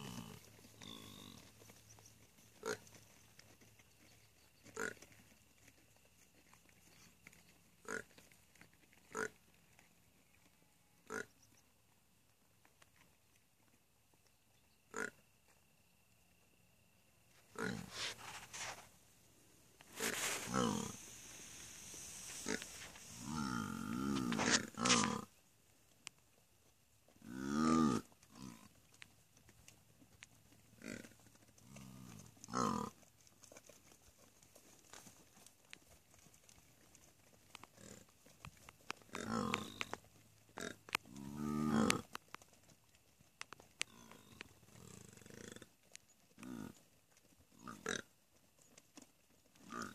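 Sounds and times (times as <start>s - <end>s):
oryx calling: 19.8s - 25.3s.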